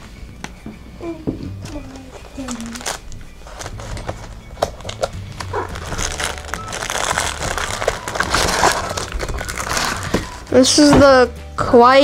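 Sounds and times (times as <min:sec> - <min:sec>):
paper and packaging rustling: 0:01.6 - 0:10.9.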